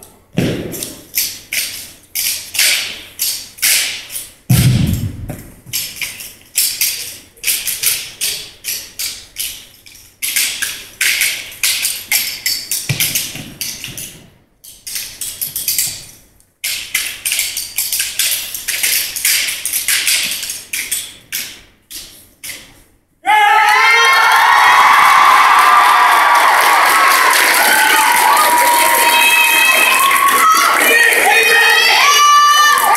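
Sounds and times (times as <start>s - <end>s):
rhythmic slaps claps and stomps: 0.4s - 6.0s
heavy thuds: 4.5s - 5.9s
crowd cheering: 23.3s - 32.9s.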